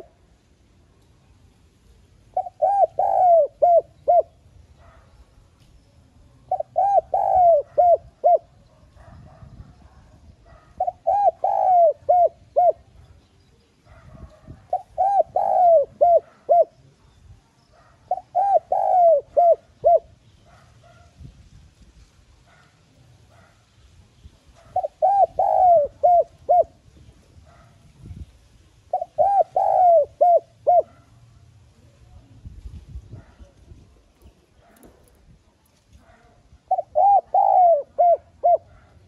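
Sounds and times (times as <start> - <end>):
dove cooing: 2.3 - 5.1, 6.5 - 13.0, 13.9 - 17.0, 17.8 - 21.0, 24.6 - 27.7, 28.9 - 31.1, 36.0 - 39.0.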